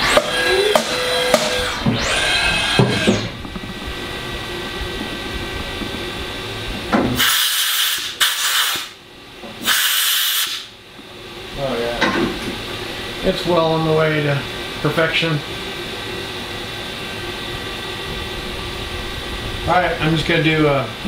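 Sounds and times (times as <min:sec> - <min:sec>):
milling machine spindle whine: 0:00.0 - 0:07.6
low steady machine noise: 0:00.0 - 0:09.7, 0:10.5 - 0:21.0
bursts of hiss: 0:07.2 - 0:09.0.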